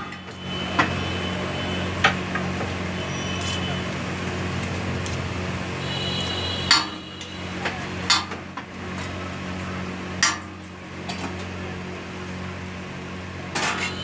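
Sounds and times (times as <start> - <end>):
metal utensil striking griddle: 6.7 - 7.0, 8.1 - 8.4, 10.2 - 10.6, 13.5 - 14.0.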